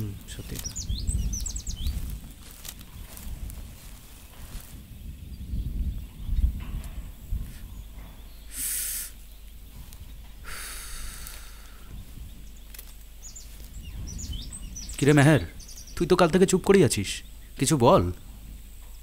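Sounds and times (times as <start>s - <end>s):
low rumble: 0.0s - 8.5s, 9.2s - 19.0s
brief hissing: 8.5s - 9.2s.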